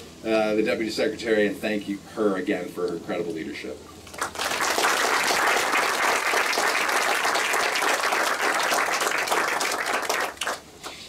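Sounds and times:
audience clapping: 4.1 - 11.0.

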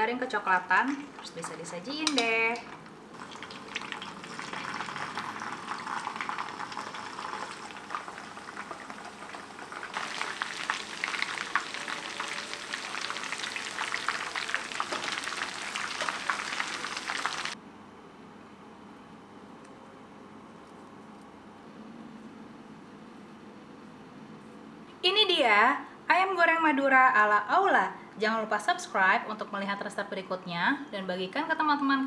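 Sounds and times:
chicken deep-frying in oil: 0.7 - 17.6.

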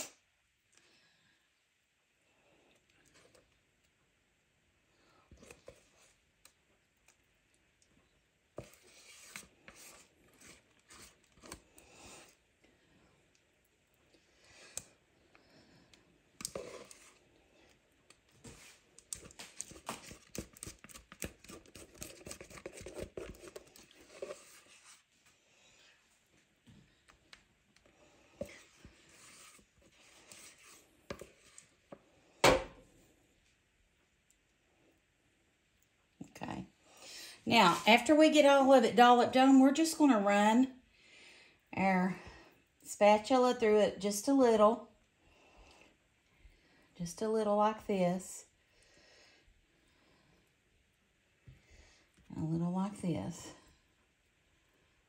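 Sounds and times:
spoon scraping mixing bowl: 8.6 - 12.4, 16.4 - 25.4, 28.3 - 31.9.

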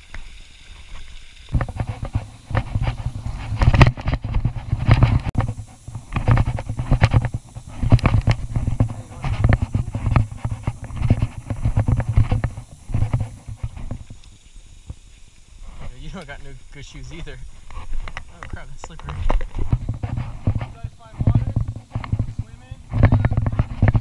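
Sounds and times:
footsteps scrambling over rock: 0.8 - 24.0
camera jostling: 1.5 - 14.1.

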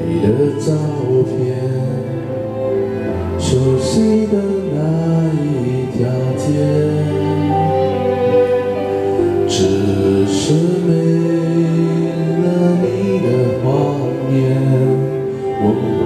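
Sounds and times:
pop ballad with singing: 0.0 - 16.0.

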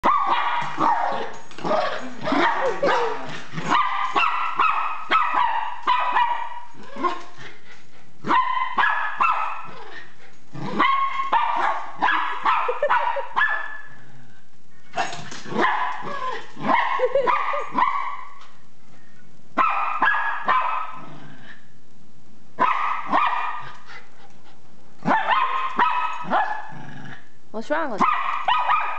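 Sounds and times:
small dog barking high-pitched: 0.0 - 1.3, 2.3 - 6.7, 8.2 - 9.7, 10.8 - 13.9, 15.0 - 16.1, 16.7 - 18.4, 19.6 - 21.0, 22.6 - 23.7, 25.0 - 26.7, 27.9 - 28.9.

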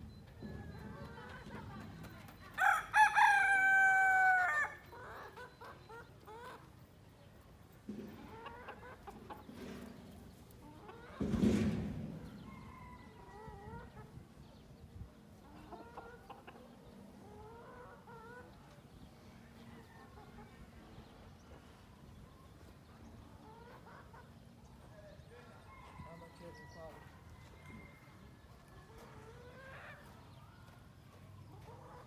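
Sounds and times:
rooster and hens calling: 0.0 - 7.3, 7.9 - 32.0
chickens clucking: 0.0 - 32.0
loud harsh chicken call: 2.6 - 4.8.

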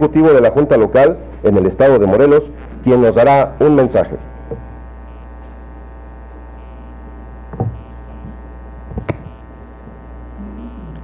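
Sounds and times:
electrical mains hum: 0.0 - 11.0
short knocks: 7.5 - 7.8.

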